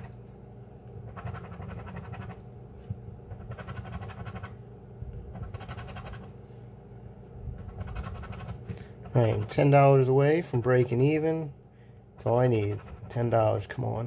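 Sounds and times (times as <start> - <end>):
coin scratching a lottery ticket: 1.1 - 2.4, 3.4 - 4.6, 5.3 - 6.3, 7.7 - 9.6, 12.3 - 13.3.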